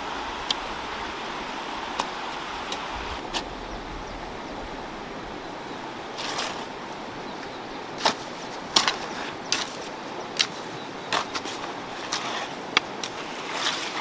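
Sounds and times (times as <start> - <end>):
river rushing: 0.0 - 14.0
hoes chopping into soil: 8.0 - 14.0.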